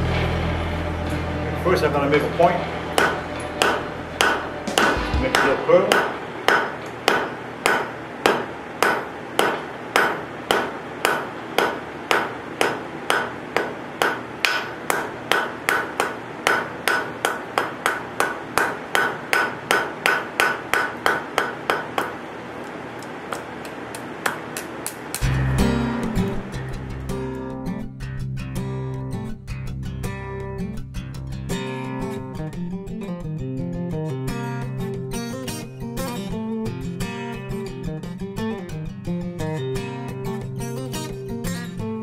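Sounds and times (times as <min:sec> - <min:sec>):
hammer striking iron on anvil: 0:02.9 - 0:22.2.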